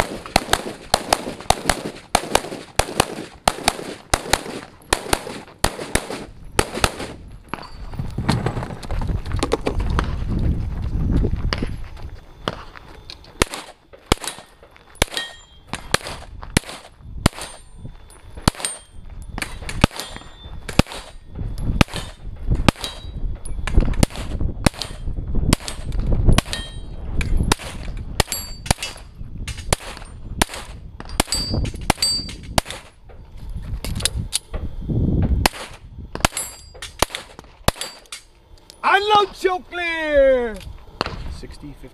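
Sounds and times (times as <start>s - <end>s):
pistol shots: 0.0s - 7.2s, 13.4s - 17.6s, 18.4s - 21.2s, 21.8s - 23.1s, 27.5s - 33.0s, 35.4s - 38.2s
metallic ring of steel targets: 14.2s - 15.8s, 17.3s - 23.8s, 25.8s - 27.6s, 28.2s - 30.2s, 31.0s - 32.6s, 36.2s - 38.8s.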